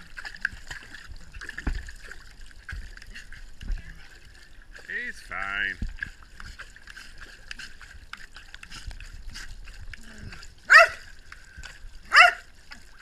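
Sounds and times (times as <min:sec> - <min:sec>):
water splashing by hand: 0:00.0 - 0:13.0
dog barking: 0:10.7 - 0:11.0, 0:12.1 - 0:12.5.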